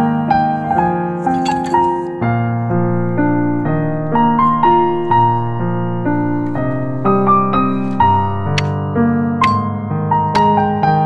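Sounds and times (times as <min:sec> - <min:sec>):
slow piano melody: 0:00.0 - 0:11.0.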